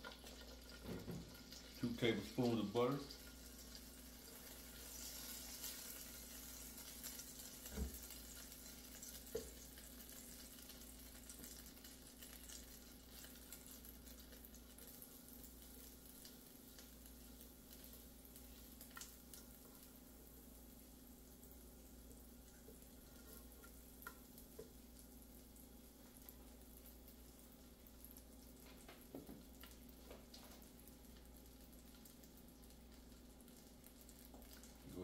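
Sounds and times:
butter sizzling in skillet: 0.0 - 35.0.

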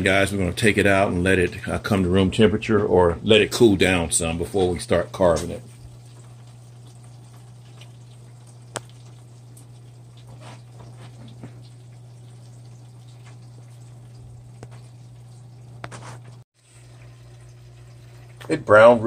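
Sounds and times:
duck fat crackling and popping: 5.4 - 16.4.

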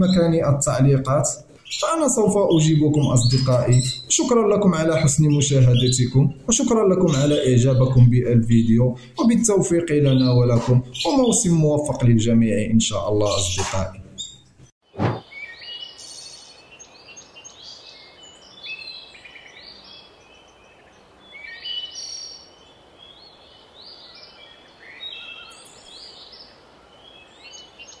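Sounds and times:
birds chirping and singing: 0.0 - 14.5, 15.2 - 28.0.

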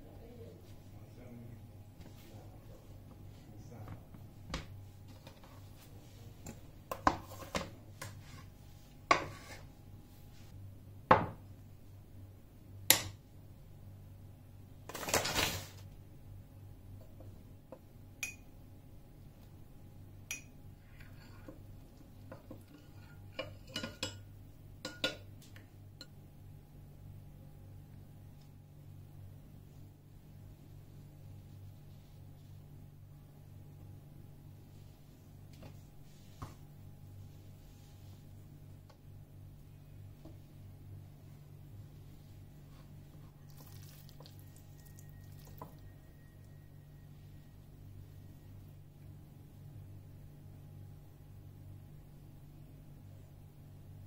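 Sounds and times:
metal spoon clinking against bowl: 18.2 - 18.5, 20.3 - 20.6.

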